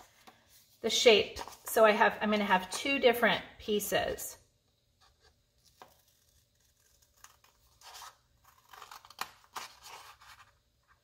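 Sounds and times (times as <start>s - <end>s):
scissors snipping paper: 5.6s - 10.2s.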